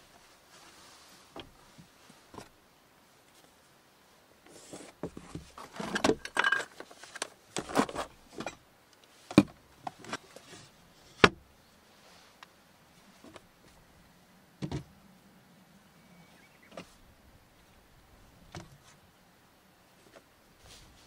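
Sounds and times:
rustling and light clattering: 0.0 - 3.8, 4.4 - 13.9, 16.7 - 19.0, 19.9 - 21.0.

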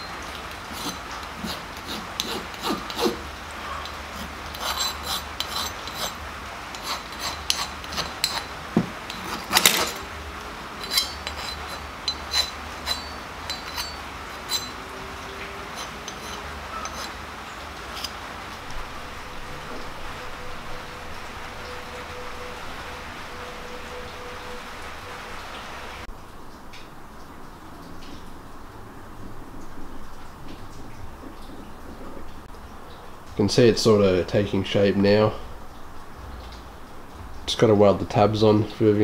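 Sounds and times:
file scraping metal: 0.6 - 10.1, 10.7 - 18.8
metallic clinks: 4.7 - 10.1, 10.8 - 14.8.

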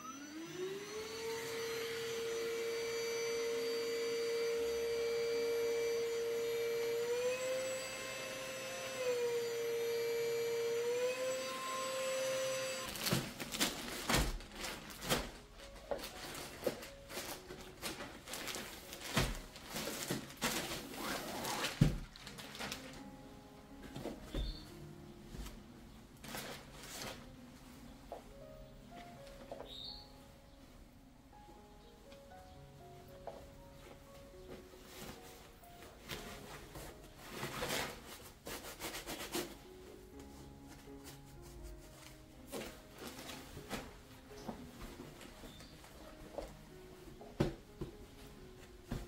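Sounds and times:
handheld vacuum motor whine: 0.0 - 13.3, 24.3 - 24.7
knocks and rustling of handling: 12.9 - 29.8, 33.2 - 49.0.

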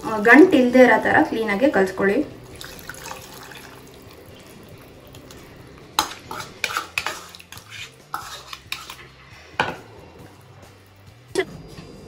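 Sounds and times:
whisk scraping steel bowl: 6.0 - 9.2.

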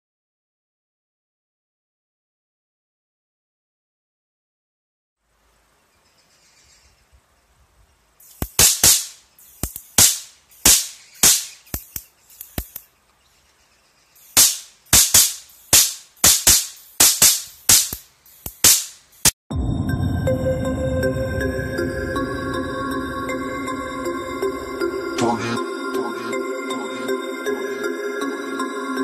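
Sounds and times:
electric arc cracking: 8.2 - 12.9, 14.2 - 19.4.

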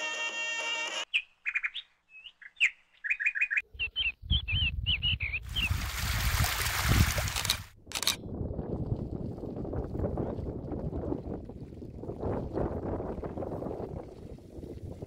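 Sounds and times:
small birds chirping: 1.1 - 5.8
wind buffeting microphone: 3.7 - 15.0.

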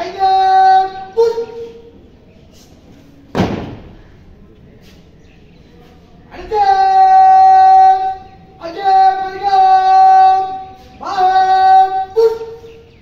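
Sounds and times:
drill commander shouting commands: 6.3 - 12.7.

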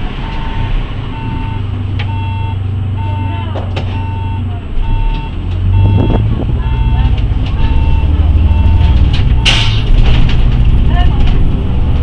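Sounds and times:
bus diesel engine idling: 0.0 - 12.0
door warning beeps: 0.2 - 9.7.

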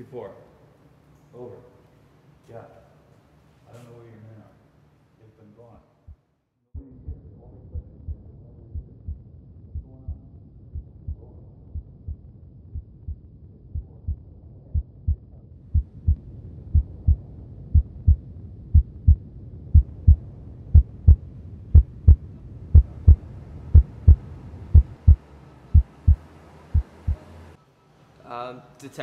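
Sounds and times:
heartbeat thumps: 6.8 - 27.2
low drone: 7.3 - 27.6.

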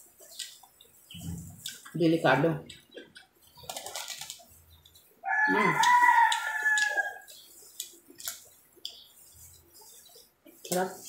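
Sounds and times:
clicks of eating and shells: 0.3 - 0.9, 5.8 - 9.1
rooster crowing: 5.2 - 7.3.

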